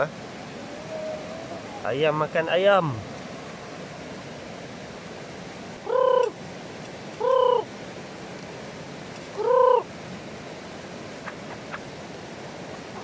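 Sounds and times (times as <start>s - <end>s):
chicken calling: 5.9s - 6.4s, 7.2s - 7.7s, 9.4s - 9.9s.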